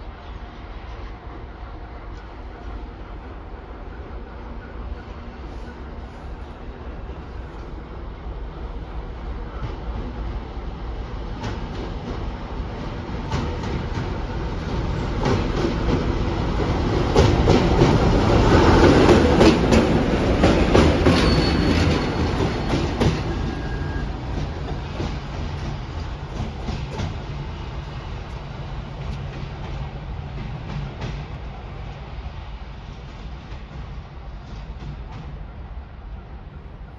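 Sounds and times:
diesel locomotive engine rumble: 0.0s - 36.9s
train wheels clicking over rail joints: 9.4s - 36.3s.

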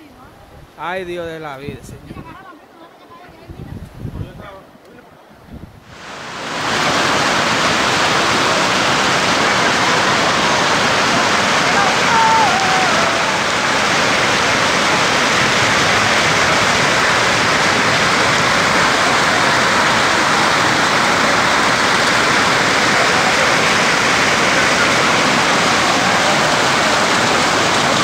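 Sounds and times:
floodwater rushing: 5.8s - 28.0s.

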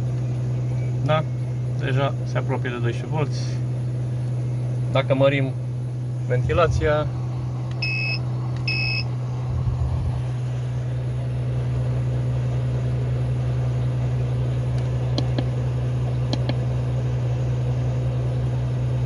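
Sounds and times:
air conditioner humming: 0.0s - 19.0s
control panel beeps: 7.8s - 9.1s.

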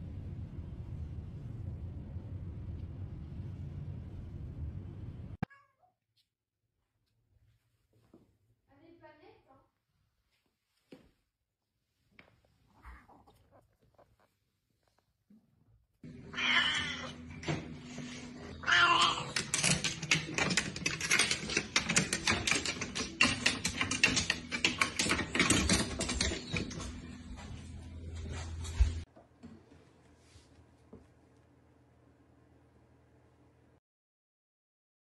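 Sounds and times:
cat meowing: 5.4s - 5.9s, 16.2s - 17.2s, 18.5s - 19.4s
cat paws tapping wooden rungs: 19.0s - 27.0s.

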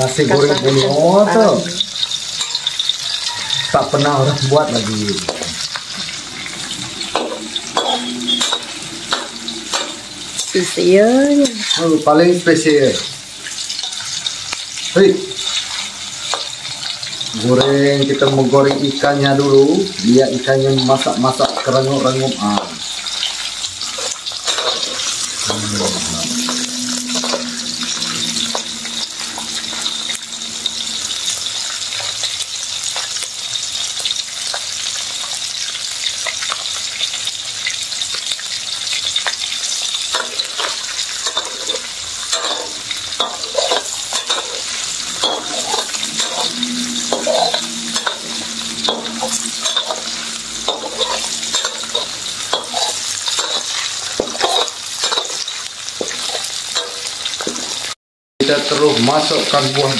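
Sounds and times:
fish frying in hot oil: 0.0s - 27.5s, 28.1s - 59.9s
metal spatula scraping a wok: 1.7s - 12.0s, 23.9s - 32.3s, 40.1s - 57.9s.

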